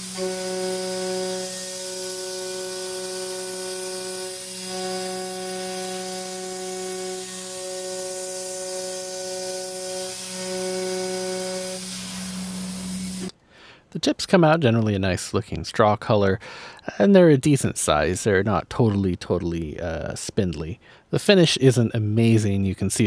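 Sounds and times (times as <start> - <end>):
coolant hiss: 0.0 - 13.3
cutting whine of milling steel: 0.0 - 13.3
spindle hum: 0.0 - 13.3.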